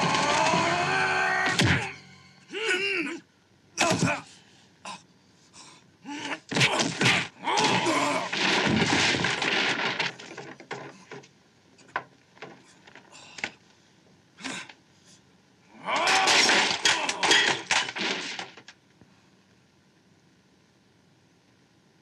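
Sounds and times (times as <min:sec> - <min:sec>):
man shouting: 0:03.8 - 0:04.3
rapid hits: 0:06.5 - 0:10.8, 0:16.1 - 0:18.6
crash: 0:06.6 - 0:11.0, 0:16.0 - 0:18.7.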